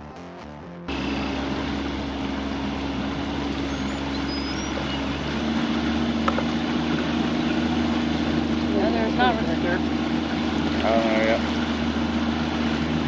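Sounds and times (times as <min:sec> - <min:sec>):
outboard motor running: 0:00.9 - 0:13.0
water rushing past hull: 0:00.9 - 0:13.0.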